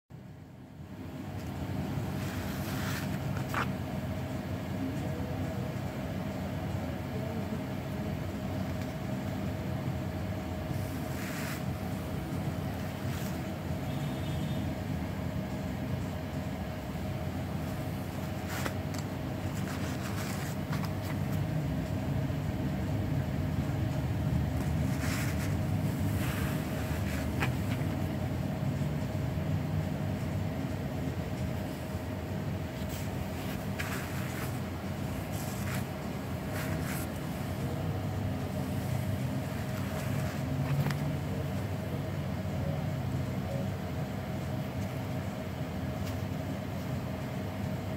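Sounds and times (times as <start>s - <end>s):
mid-pitched hum: 0.1s - 47.9s
sandals tapping and rustling: 2.1s - 3.9s, 17.6s - 21.6s, 24.5s - 28.1s, 32.8s - 37.8s, 38.5s - 41.3s.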